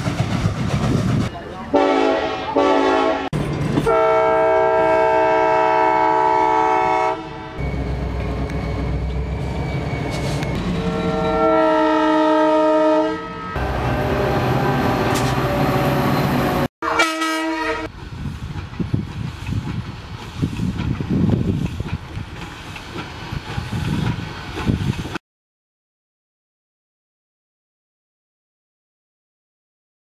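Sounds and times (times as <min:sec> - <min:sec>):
passing locomotives rumble: 0:00.0 - 0:25.2
locomotive air horns: 0:01.7 - 0:03.3, 0:03.9 - 0:07.6, 0:10.1 - 0:15.9, 0:16.8 - 0:17.9.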